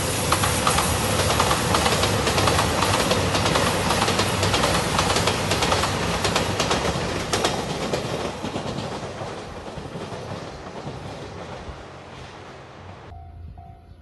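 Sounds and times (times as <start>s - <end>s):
diesel train passing: 0.0s - 14.0s
wheels clattering over rail joints: 0.7s - 11.8s.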